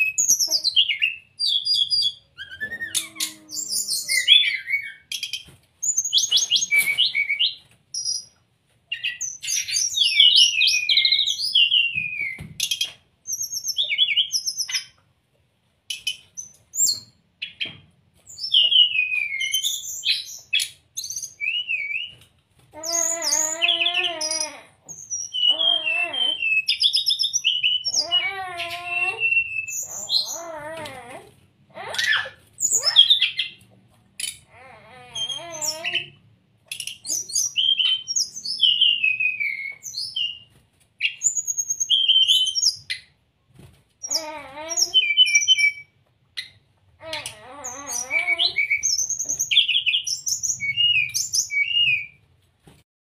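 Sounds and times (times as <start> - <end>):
lower wavering bird calls: 22.8 - 31.2
bird singing whistled phrases: 25.0 - 30.4, 37.1 - 40.4, 47.6 - 52.2.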